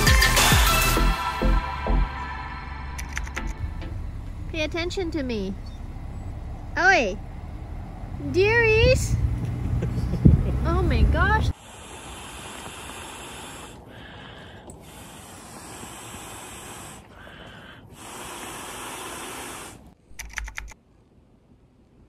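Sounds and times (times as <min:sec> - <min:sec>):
sharp clicks: 0:03.0 - 0:03.6, 0:20.1 - 0:20.8
breathy exhales into inflatable: 0:11.5 - 0:20.0.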